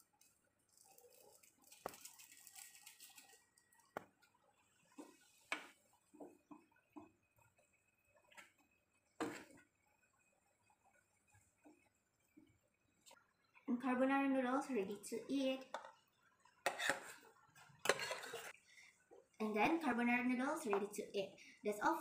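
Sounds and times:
metal spoon scraping saucepan: 16.7 - 17.2, 17.8 - 18.6.

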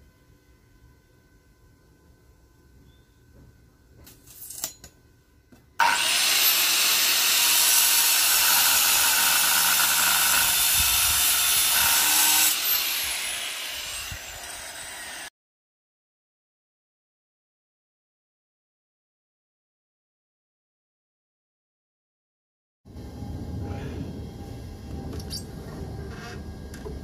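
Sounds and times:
angle grinder cutting steel: 5.8 - 15.3.

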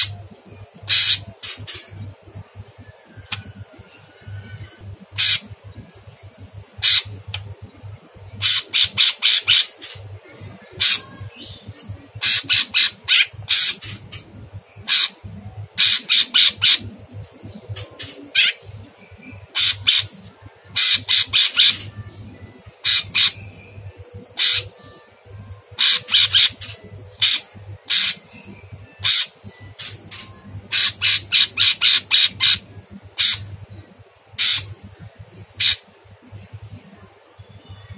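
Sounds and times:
bird singing harsh rasping notes: 0.0 - 2.0, 4.7 - 5.6, 6.7 - 7.4, 10.6 - 16.9, 17.5 - 20.2, 20.8 - 34.8, 35.5 - 35.9.

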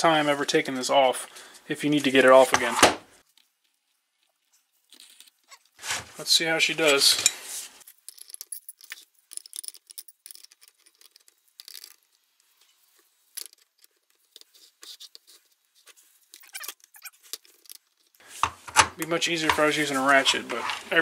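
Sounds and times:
small metal clinks: 7.9 - 12.2
hand tools clicking and rustling: 16.3 - 21.0.

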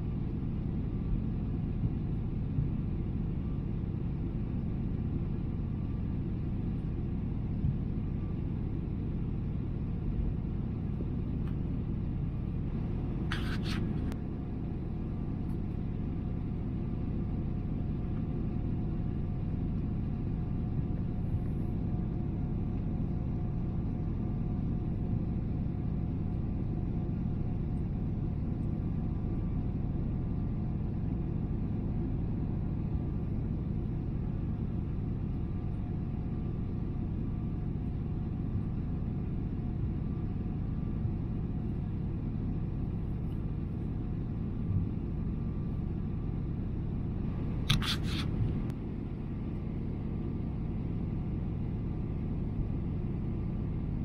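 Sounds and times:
airplane cabin roar: 0.0 - 54.0
faint steady hum: 0.0 - 54.0
sharp click: 47.6 - 48.3.

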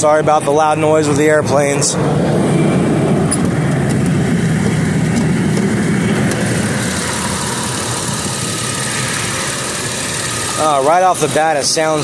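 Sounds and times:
jet airliner rumbling overhead: 0.0 - 12.0
car engine idling roughly: 3.4 - 12.0.

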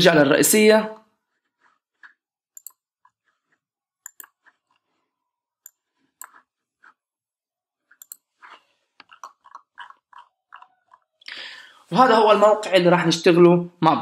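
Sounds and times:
computer mouse clicks: 2.0 - 3.2, 4.0 - 4.8, 7.9 - 9.2.

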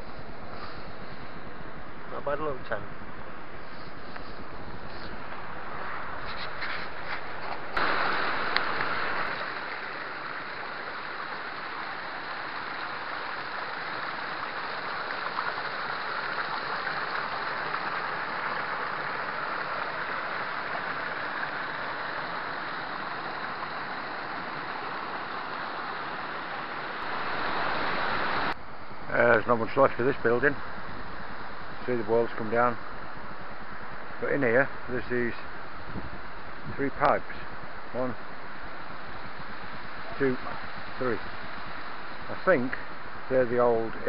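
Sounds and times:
waterfall rushing: 7.7 - 28.6.

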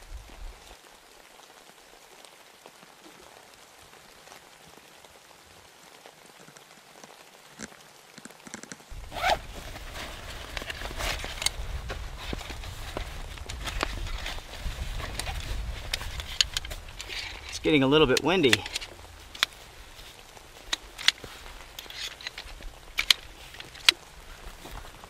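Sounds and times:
wind rumble on microphone: 0.0 - 0.7, 8.9 - 21.8
freezing rain pattering: 0.0 - 25.0.

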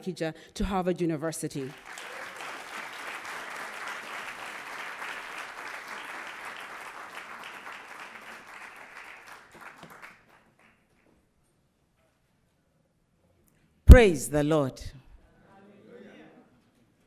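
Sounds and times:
audience applauding: 1.7 - 10.8.

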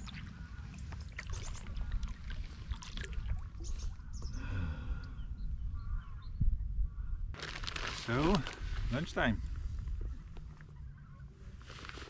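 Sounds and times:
kayak paddles dipping in water: 0.2 - 4.0
water splashes and drips: 0.8 - 3.9.

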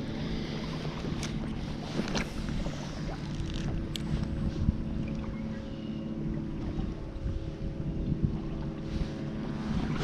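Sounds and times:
water lapping against kayak: 0.0 - 10.0
wind buffeting microphone: 0.0 - 10.0.

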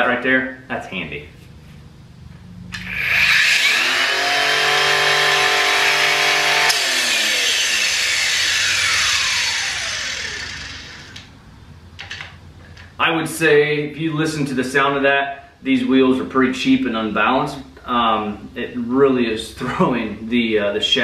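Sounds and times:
angle grinder whining: 2.7 - 11.4.

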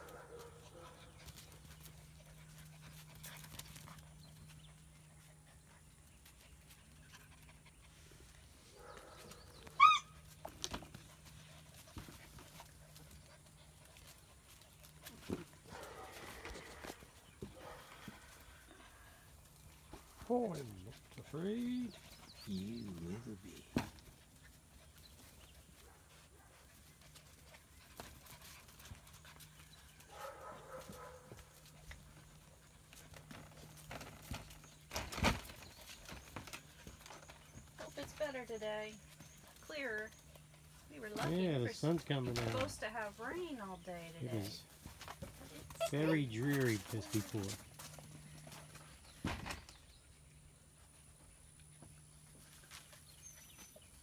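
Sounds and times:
paws clicking on concrete: 0.0 - 22.5, 23.9 - 50.0
puppy yipping: 9.6 - 10.2.

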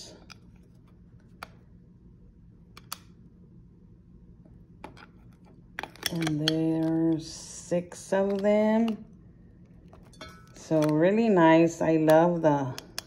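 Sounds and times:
metal coasters clicking and tapping: 4.8 - 7.4, 8.1 - 9.0, 9.9 - 11.2, 11.9 - 13.0.

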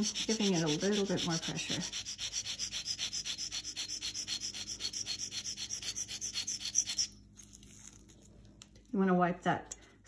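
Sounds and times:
blade scraping on sharpening stone: 0.0 - 7.2.

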